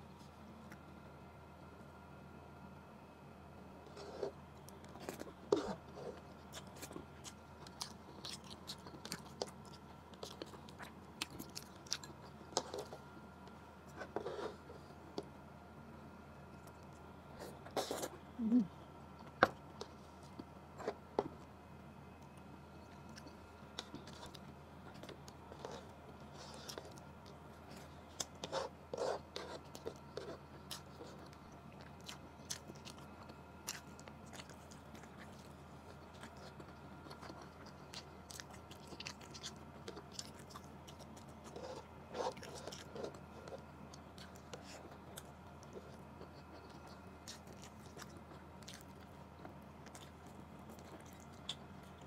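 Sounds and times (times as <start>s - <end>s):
person chewing food: 3.8s - 15.4s, 22.2s - 52.0s.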